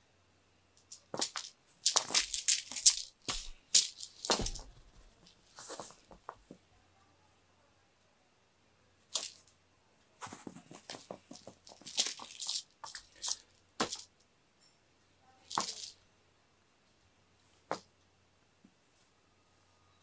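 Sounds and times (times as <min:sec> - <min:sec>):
ribbon rustling on foam mats: 0:00.8 - 0:06.6, 0:10.2 - 0:14.2.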